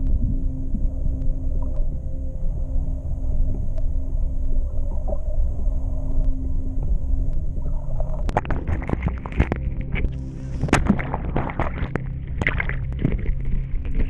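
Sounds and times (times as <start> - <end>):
muffled underwater churning: 0.0 - 14.0
water splashing: 7.8 - 14.0.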